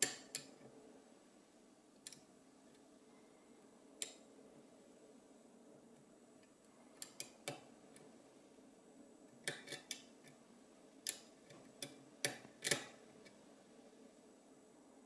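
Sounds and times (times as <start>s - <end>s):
lock pick clicking on pins: 0.0s - 0.6s, 2.0s - 2.3s, 7.0s - 7.7s, 9.4s - 10.4s, 11.0s - 13.0s.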